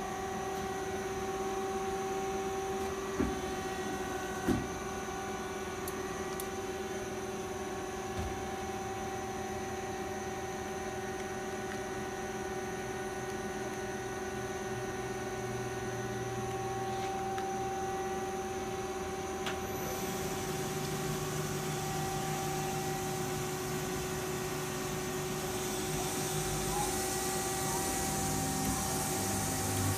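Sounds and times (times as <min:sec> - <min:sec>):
machine hum with constant tones: 0:00.0 - 0:29.9
hiss: 0:24.5 - 0:29.9.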